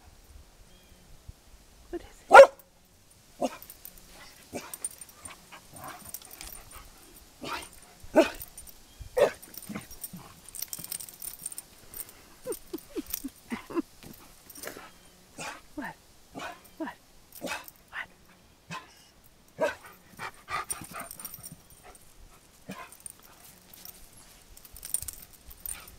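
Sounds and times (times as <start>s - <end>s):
dog barking: 2.3s - 2.6s, 7.4s - 8.4s, 9.2s - 9.4s
dog yipping: 2.3s - 2.6s.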